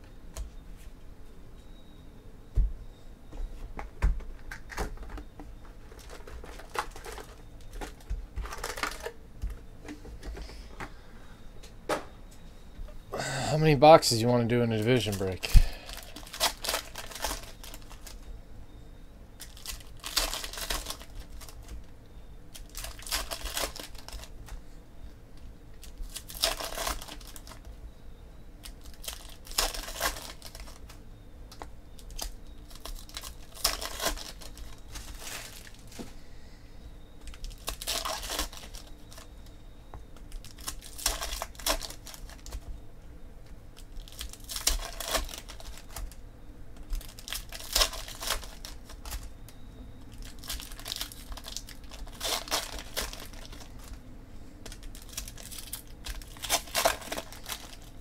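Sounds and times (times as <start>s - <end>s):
foil wrappers tearing and crinkling: 5.8s - 9.2s, 14.1s - 18.3s, 19.4s - 21.9s, 22.5s - 24.6s, 25.8s - 27.7s, 28.6s - 31.0s, 32.0s - 36.0s, 37.2s - 39.3s, 40.2s - 42.7s, 43.8s - 46.2s, 46.8s - 49.3s, 50.1s - 54.0s, 54.6s - 58.0s.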